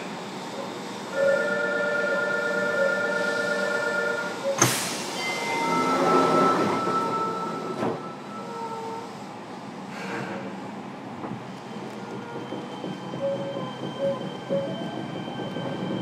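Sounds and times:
train electrical whine: 0:00.0 - 0:10.5
train rumbling: 0:00.0 - 0:16.0.

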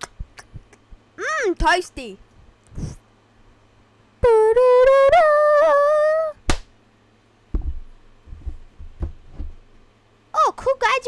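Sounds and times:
soft low thumps: 0:07.5 - 0:09.7.

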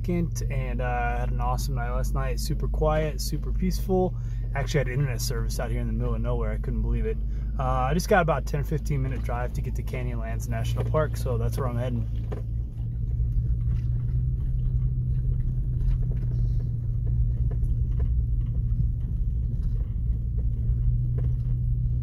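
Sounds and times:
vehicle engine and tyre rumble: 0:00.0 - 0:22.0
faint knocks and rattles: 0:10.5 - 0:22.0.

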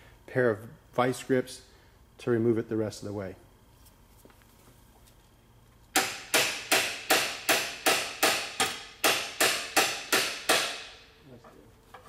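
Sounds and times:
hammer striking metal punch: 0:06.0 - 0:11.1.

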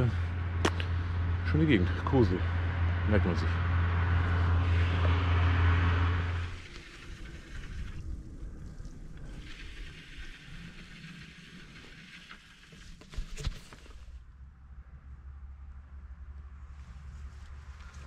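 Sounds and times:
steady low hum: 0:00.0 - 0:13.0
wind on microphone: 0:06.3 - 0:11.5.

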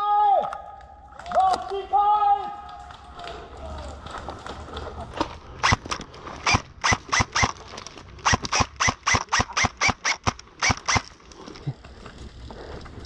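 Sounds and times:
airsoft gun shots: 0:05.6 - 0:07.6, 0:08.2 - 0:11.1.

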